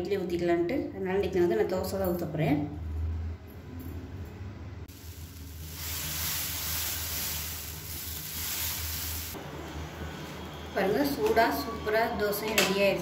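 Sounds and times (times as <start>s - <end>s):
batter sizzling on a hot griddle: 4.9s - 9.4s.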